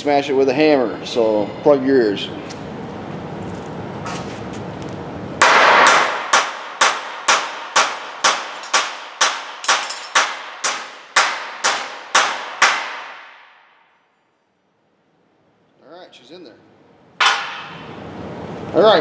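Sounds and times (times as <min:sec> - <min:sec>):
hammer ringing on metal: 0:05.4 - 0:13.1.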